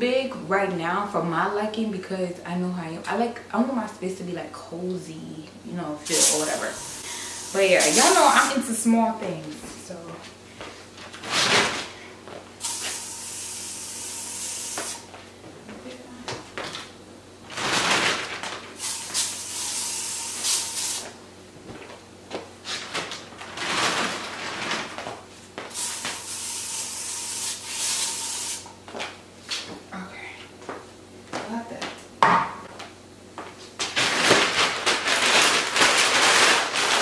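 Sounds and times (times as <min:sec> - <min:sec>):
aerosol spray hissing: 0:06.1 - 0:08.5.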